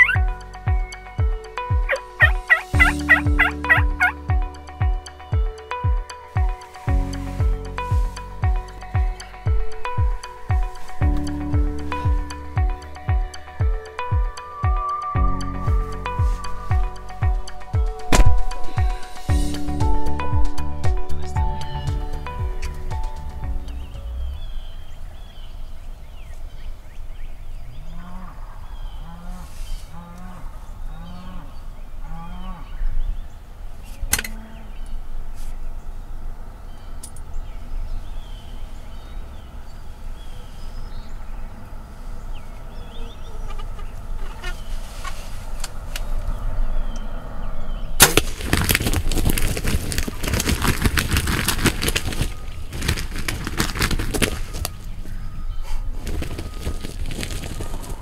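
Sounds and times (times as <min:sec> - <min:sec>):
wild turkey calling: 0:00.0 - 0:04.3, 0:42.6 - 0:45.3
faint songbird chirps: 0:00.0 - 0:48.0, 0:52.1 - 0:58.0
turkey wings beating: 0:01.8 - 0:04.2, 0:48.0 - 0:58.0
sharp gunshot: 0:48.0 - 0:48.5.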